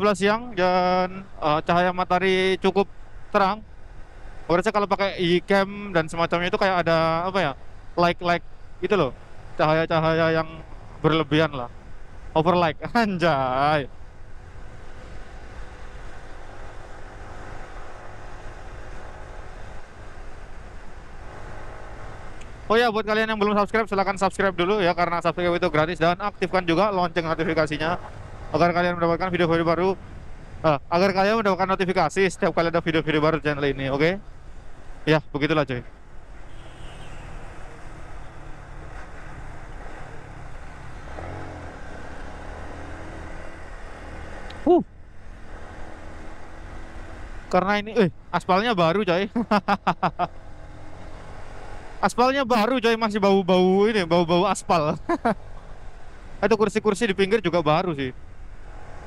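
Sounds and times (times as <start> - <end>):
motorcycle engine running: 5.6 - 31.6.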